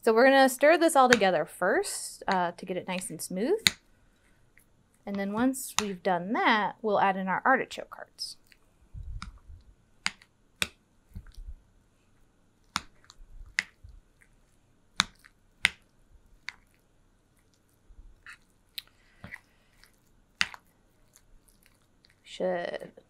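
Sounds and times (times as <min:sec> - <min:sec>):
spoon stirring thick dip: 0:12.6 - 0:22.3.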